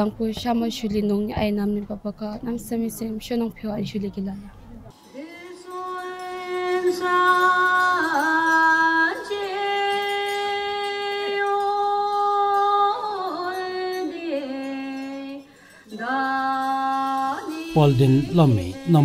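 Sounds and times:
person singing slow devotional song: 5.0 - 19.0
singer breathing: 15.5 - 16.0.

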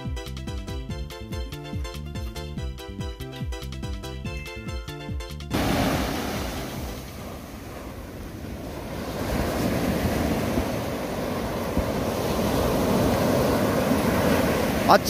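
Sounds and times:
sea waves breaking on beach: 5.5 - 15.0
wind buffeting microphone: 5.6 - 14.9.

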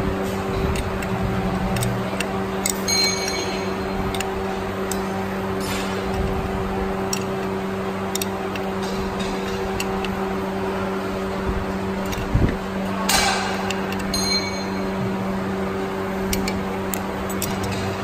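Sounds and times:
workshop machinery hum: 0.0 - 18.0
wrench clicking on nut: 0.7 - 5.1, 7.0 - 7.5, 8.1 - 10.2, 13.1 - 14.2, 16.3 - 17.9.

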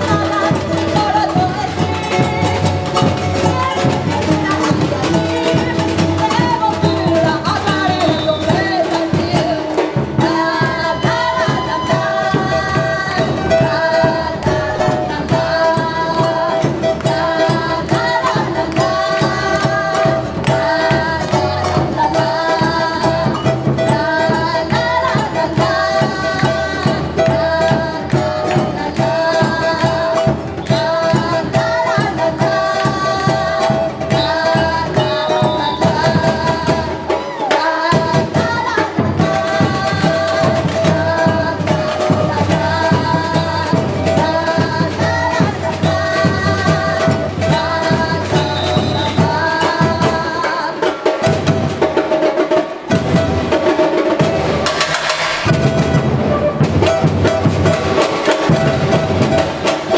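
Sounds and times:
women singing: 0.0 - 54.7, 55.4 - 59.9
bass drums and hand percussion: 0.0 - 59.9.

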